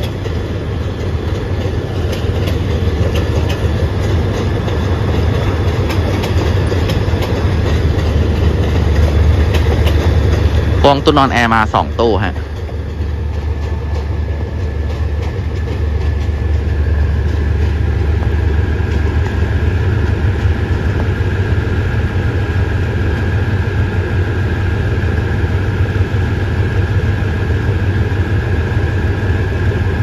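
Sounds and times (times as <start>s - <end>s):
locomotive engine drone: 0.0s - 30.0s.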